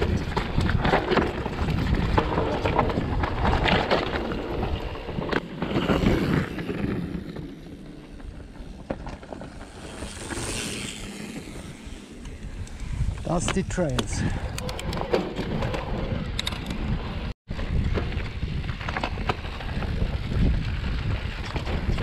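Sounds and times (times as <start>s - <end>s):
wind buffeting microphone: 0.0s - 7.0s, 8.2s - 22.0s
bike rattling clicks: 9.0s - 17.0s.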